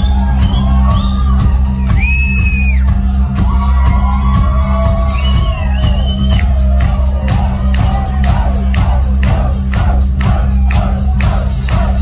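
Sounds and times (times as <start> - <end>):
crowd whooping and shouting: 0.0 - 12.0
heavy boomy bass: 0.0 - 12.0.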